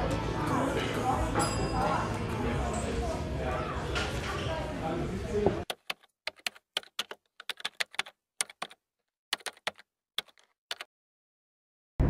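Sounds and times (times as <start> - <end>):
quick irregular clicks: 5.7 - 8.8, 9.4 - 10.9.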